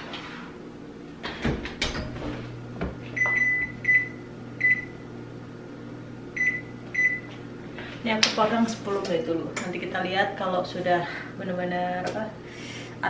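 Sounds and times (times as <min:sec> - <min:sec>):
oven hum: 0:00.0 - 0:13.0
oven door shutting: 0:01.2 - 0:03.0.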